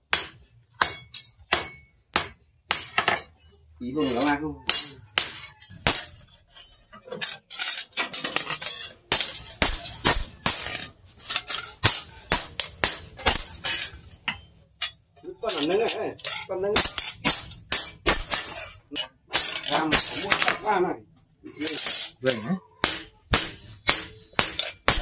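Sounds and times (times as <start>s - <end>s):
hammer striking metal on anvil: 0.1s - 3.3s, 4.2s - 6.2s, 9.1s - 20.7s, 22.8s - 25.0s.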